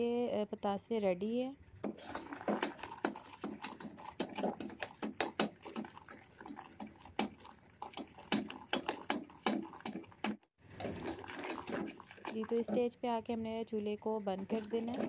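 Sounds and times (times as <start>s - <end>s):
syrup boiling: 1.7s - 15.0s.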